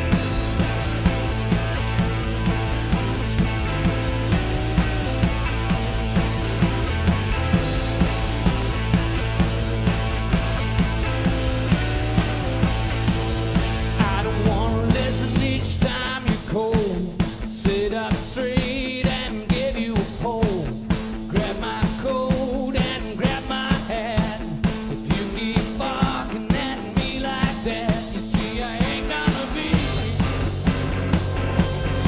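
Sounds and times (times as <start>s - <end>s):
electric guitar: 0.0s - 32.0s
steady drum beat: 0.0s - 32.0s
man singing: 14.0s - 30.6s, 31.7s - 32.0s.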